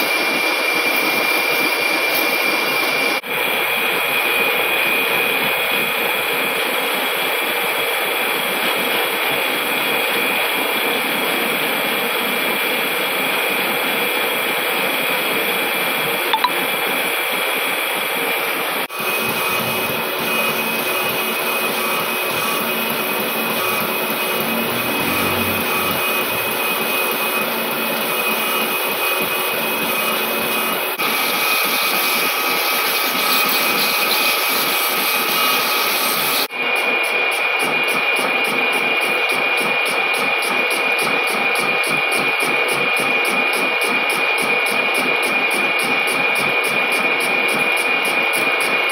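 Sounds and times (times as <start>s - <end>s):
lathe machining noise: 0.0s - 8.9s, 17.5s - 37.4s
high steady whine: 19.0s - 30.9s.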